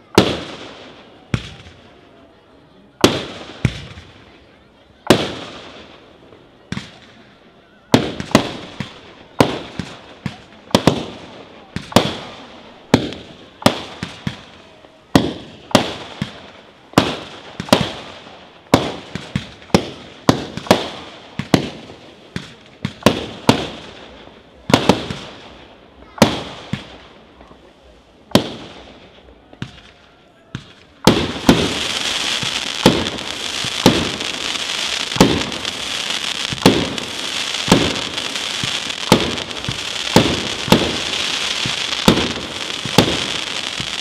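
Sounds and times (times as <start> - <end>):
fireworks bursting with echo: 0.0 - 44.0.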